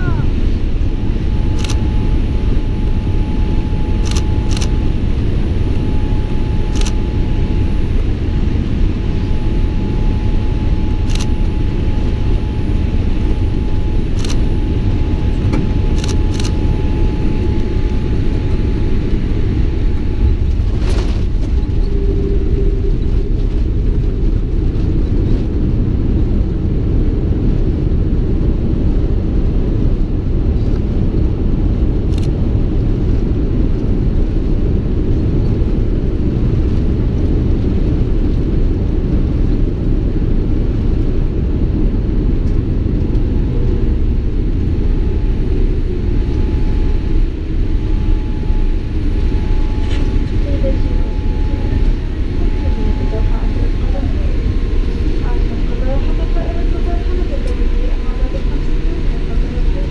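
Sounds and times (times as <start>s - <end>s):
airflow noise: 0.0s - 26.8s, 41.5s - 59.9s
airliner engine rumble: 0.0s - 59.9s.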